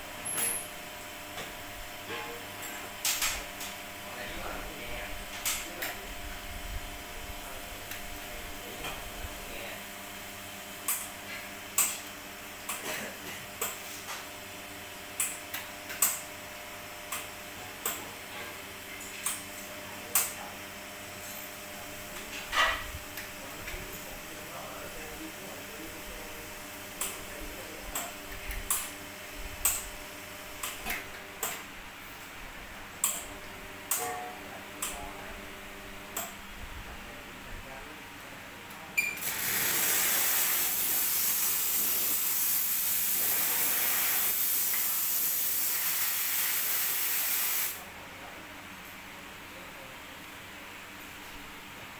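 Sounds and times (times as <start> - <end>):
espresso machine pump hum: 39.2 - 45.6
hot water hissing onto drip tray: 39.3 - 47.8.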